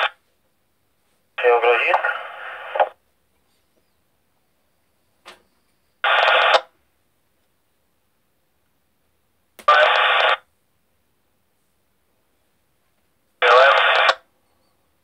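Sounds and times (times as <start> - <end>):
radio signalling bursts: 1.4 - 3.0, 6.0 - 6.7, 9.7 - 10.5, 13.4 - 14.3.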